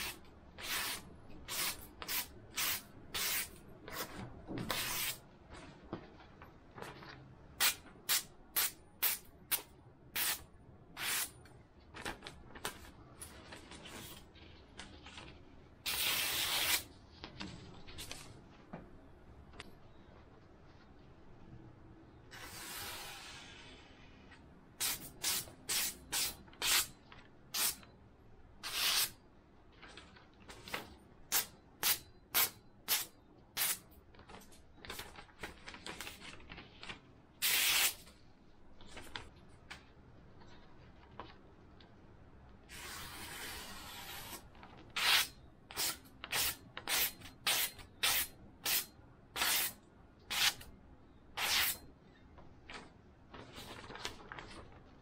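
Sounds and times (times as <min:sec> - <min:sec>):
soft paper rustling: 0:05.4 - 0:08.0, 0:11.8 - 0:15.8, 0:16.9 - 0:19.0, 0:20.0 - 0:21.4, 0:29.6 - 0:31.1, 0:34.1 - 0:37.2, 0:38.0 - 0:42.0, 0:52.1 - 0:55.0.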